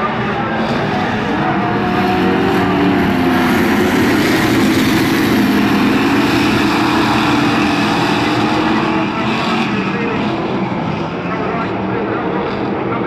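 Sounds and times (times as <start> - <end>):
race cars racing past: 0.0 - 13.0.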